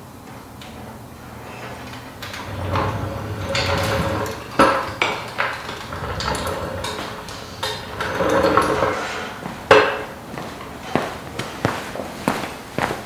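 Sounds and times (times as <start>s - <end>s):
metal floor jack rattling: 1.8s - 10.1s.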